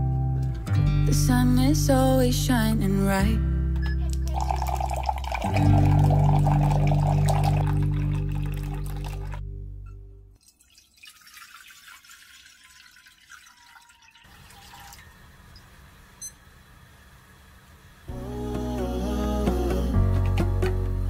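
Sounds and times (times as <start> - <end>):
background music: 0.0 - 9.8, 18.1 - 21.0
water pouring into a pot: 4.2 - 9.4, 10.4 - 15.2.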